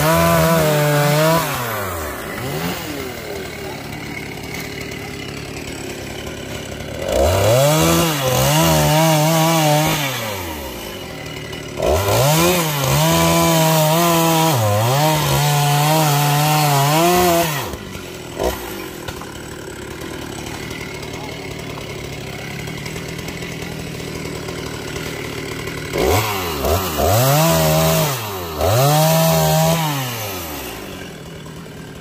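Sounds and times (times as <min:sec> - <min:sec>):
chainsaw idling and cutting: 0:00.0 - 0:32.0.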